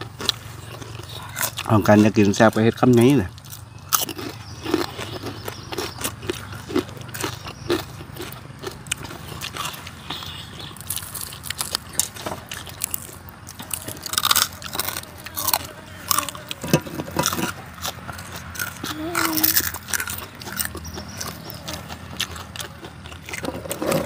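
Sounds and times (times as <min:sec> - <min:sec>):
crunching and chewing crispy food: 0:00.0 - 0:24.0
people murmuring: 0:13.4 - 0:23.0.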